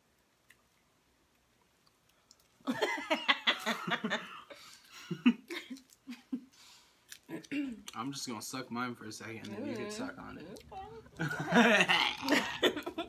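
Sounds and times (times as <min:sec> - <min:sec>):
people laughing: 0:02.7 - 0:04.3, 0:09.7 - 0:13.0.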